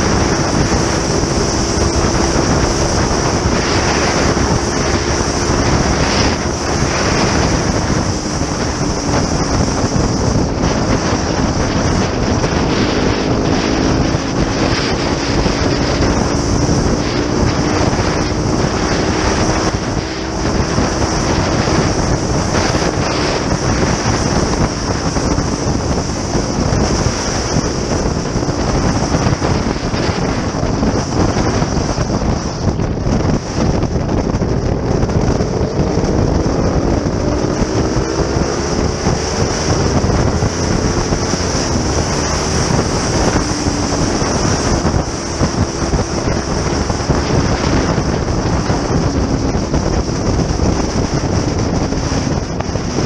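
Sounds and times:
motorcycle engine: 0.0s - 53.0s
wind noise on microphone: 0.0s - 53.0s.

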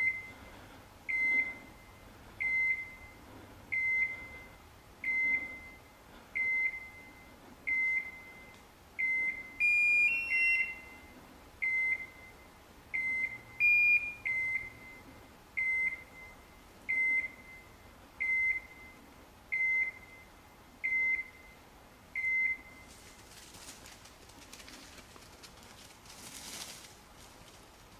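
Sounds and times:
short high beeps: 6.4s - 19.0s.

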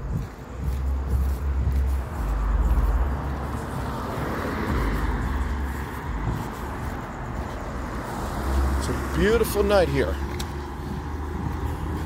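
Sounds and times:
low rumble on microphone: 0.0s - 3.9s
car passing: 0.0s - 12.0s.

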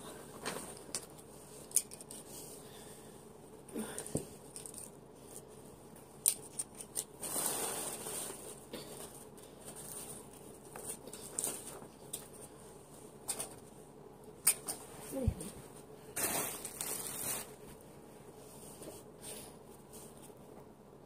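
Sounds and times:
paper and plastic rustling: 6.5s - 12.5s, 16.2s - 17.8s.

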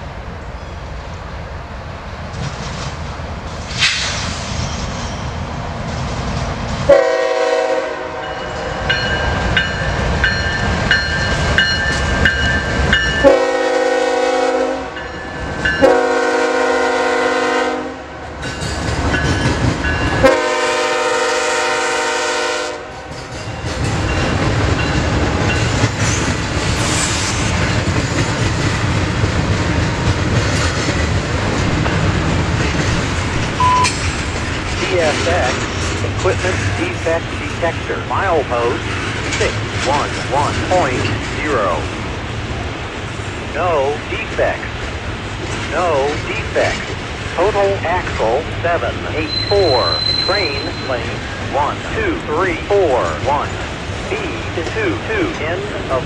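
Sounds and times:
locomotive air horn blasts: 6.9s - 8.4s, 13.2s - 15.0s, 15.8s - 18.0s, 20.2s - 23.0s
train wheels clattering on rails: 18.4s - 20.4s, 23.0s - 37.6s
locomotive engine rumble: 27.4s - 56.0s.

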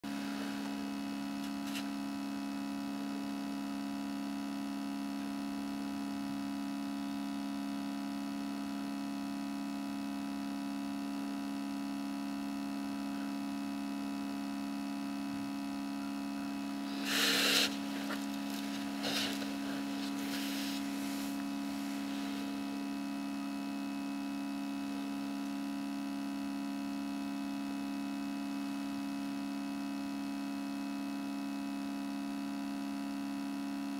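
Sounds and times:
electrical hum: 0.0s - 10.8s, 11.4s - 29.4s
faint steady whine: 0.0s - 11.0s, 11.6s - 31.6s
short scratchy noise: 16.8s - 22.5s.

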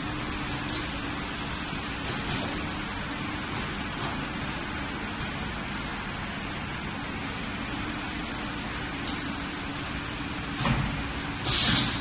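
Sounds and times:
machine humming: 0.0s - 10.4s
burst of hiss: 11.5s - 12.0s.

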